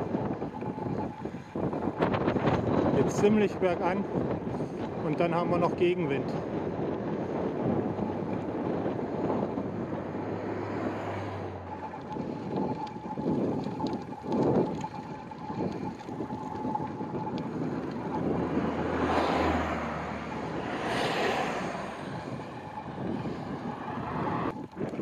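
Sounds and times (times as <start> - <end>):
wind buffeting microphone: 0.0 - 25.0
motor vehicles overtaking: 6.1 - 25.0.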